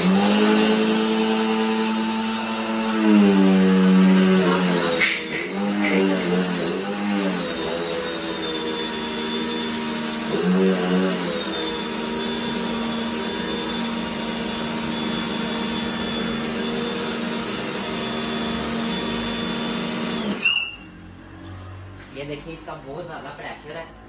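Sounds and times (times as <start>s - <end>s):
pressure washer motor whining: 0.0s - 21.1s
high-pressure water jet hissing: 4.4s - 6.4s.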